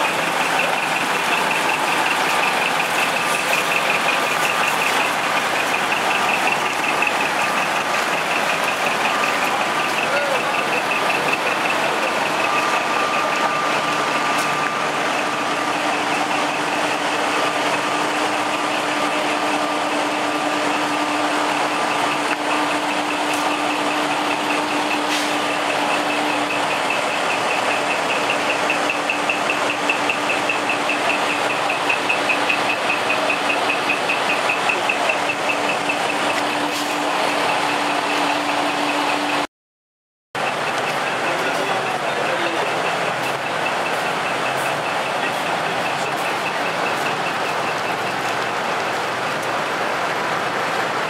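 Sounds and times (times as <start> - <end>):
fast high-pitched pulsing beep: 0.0 - 17.9, 21.8 - 39.4
truck engines running: 0.0 - 39.5, 40.4 - 51.0.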